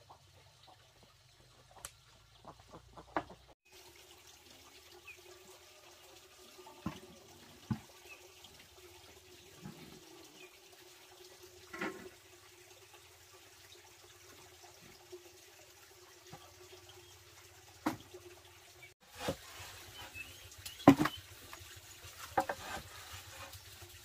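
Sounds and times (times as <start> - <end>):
trickling water: 0.0 - 24.0
pots knocking and clunking: 11.7 - 12.1, 20.8 - 21.2.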